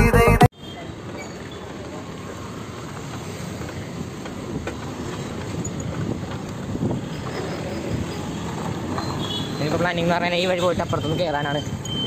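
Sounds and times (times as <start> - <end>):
street traffic noise: 0.0 - 12.0
motor vehicles passing: 0.9 - 10.5.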